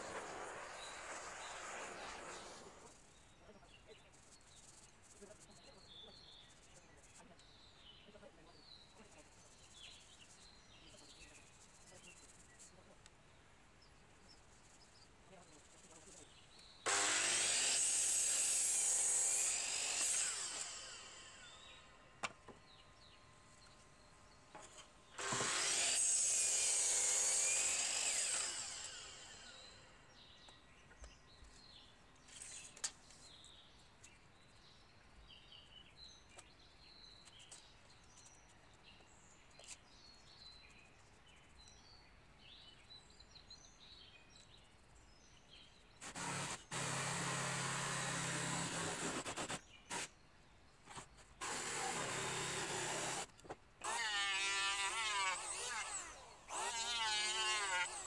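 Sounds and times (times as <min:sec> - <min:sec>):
miter saw cutting wood: 0:00.0 - 0:03.0, 0:16.9 - 0:21.9, 0:25.2 - 0:30.0, 0:46.0 - 0:50.1, 0:50.9 - 0:58.0
jigsaw running: 0:16.9 - 0:21.4, 0:25.2 - 0:29.9, 0:46.0 - 0:50.1, 0:51.4 - 0:58.0.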